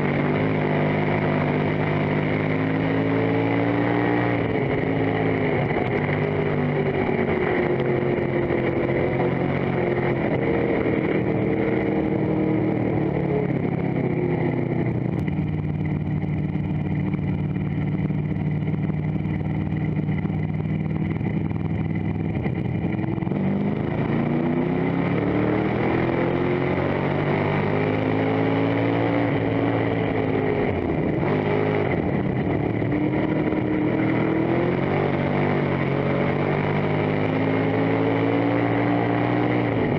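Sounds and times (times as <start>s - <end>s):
race car engine revving: 0.0s - 15.3s, 19.3s - 39.9s.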